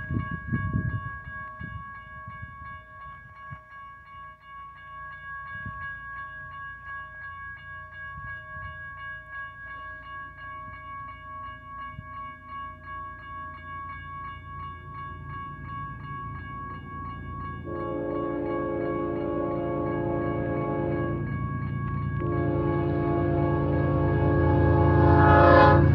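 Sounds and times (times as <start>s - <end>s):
crossing bell ringing: 0.0s - 25.9s.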